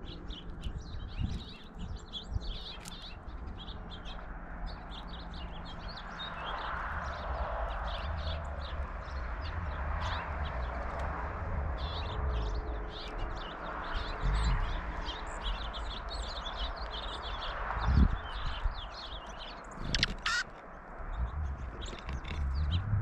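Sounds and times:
songbirds chirping: 0:00.0 - 0:23.0
low steady rumble: 0:21.0 - 0:23.0.

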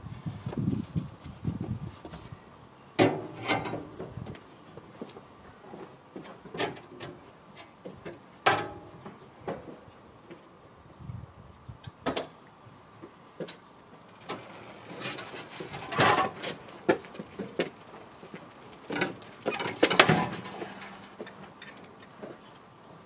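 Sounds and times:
motorcycle clanking against metal rack: 0:08.4 - 0:09.7, 0:18.9 - 0:22.4.

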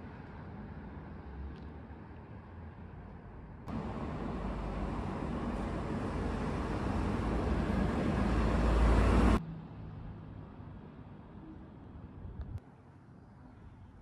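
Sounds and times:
street background noise: 0:00.0 - 0:14.0
vehicle passing: 0:03.7 - 0:09.4.

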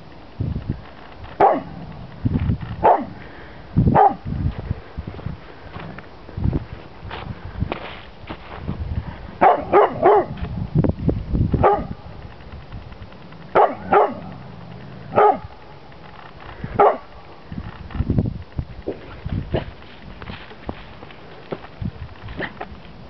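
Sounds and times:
dog barking: 0:01.4 - 0:01.7, 0:02.8 - 0:03.2, 0:03.9 - 0:04.2, 0:09.4 - 0:10.4, 0:11.6 - 0:12.0, 0:13.6 - 0:14.3, 0:15.2 - 0:15.5, 0:16.8 - 0:17.1.

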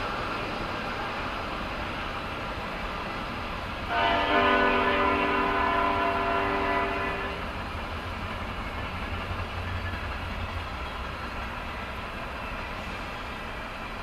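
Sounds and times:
train rumbling past: 0:00.0 - 0:14.0
locomotive air horn: 0:03.9 - 0:07.4.

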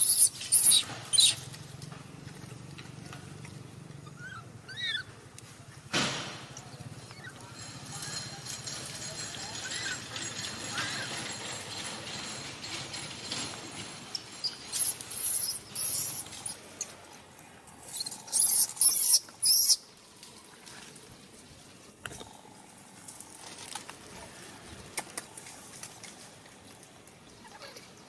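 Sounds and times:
baby monkey shrieking: 0:00.0 - 0:01.4, 0:04.1 - 0:05.1, 0:14.7 - 0:16.6, 0:17.9 - 0:19.8.

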